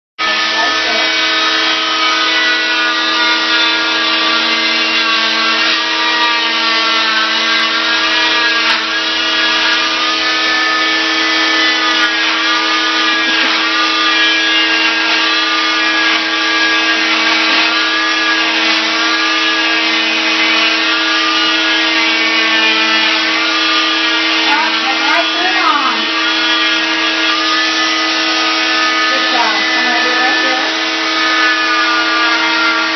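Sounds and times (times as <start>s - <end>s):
cast saw whining: 0.2s - 32.9s
vacuum running: 0.2s - 32.9s.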